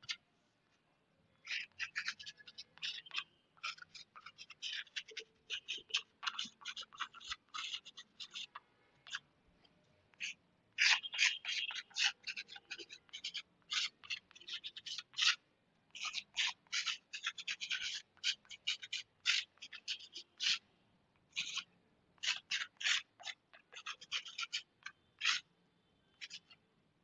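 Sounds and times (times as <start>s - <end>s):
chalk scratching on blackboard: 16.0s - 20.6s.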